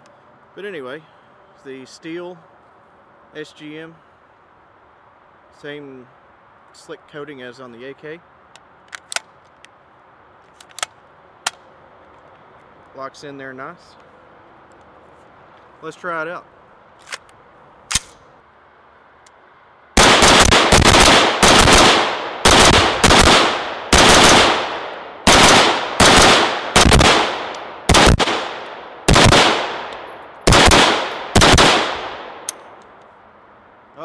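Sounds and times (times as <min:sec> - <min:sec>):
rifle shots with ringing echo: 0:20.0 - 0:32.6.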